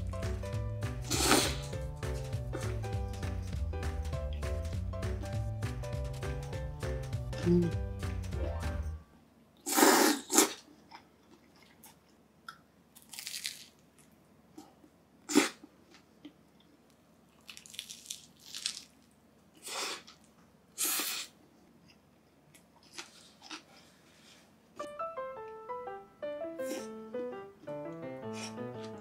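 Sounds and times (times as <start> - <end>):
toasted bread crunching: 13.0 - 13.7, 17.4 - 19.1
quiet chewing: 21.7 - 24.0.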